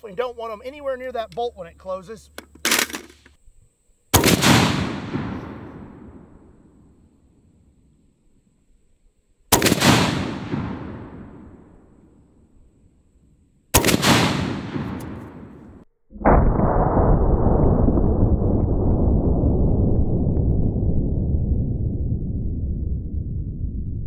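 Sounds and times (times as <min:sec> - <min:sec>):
rifle shots with echo: 0:04.2 - 0:06.5, 0:09.5 - 0:11.8, 0:13.8 - 0:16.4.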